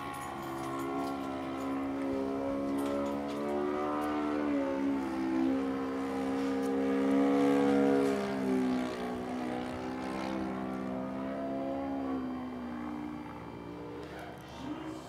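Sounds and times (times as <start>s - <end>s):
model plane engine buzzing: 0.0s - 15.0s.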